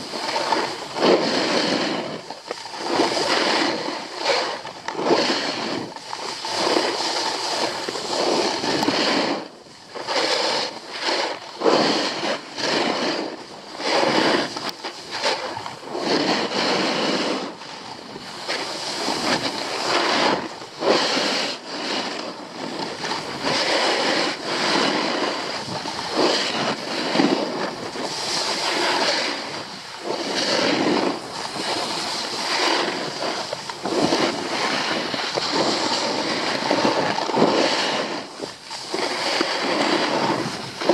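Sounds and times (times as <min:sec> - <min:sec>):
skis scraping over packed snow: 0:00.0 - 0:40.9
wind buffeting microphone: 0:11.6 - 0:40.9.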